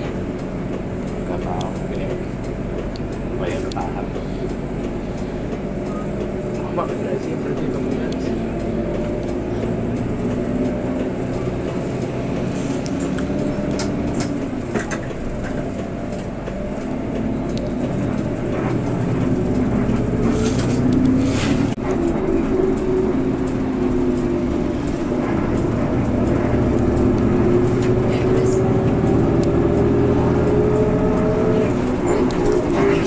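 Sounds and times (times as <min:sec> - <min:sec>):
bus engine running: 0:00.0 - 0:33.0.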